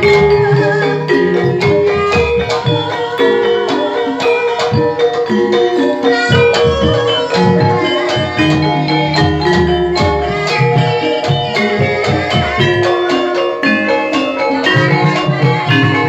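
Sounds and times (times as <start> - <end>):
metallophones ringing melody: 0.0 - 16.0.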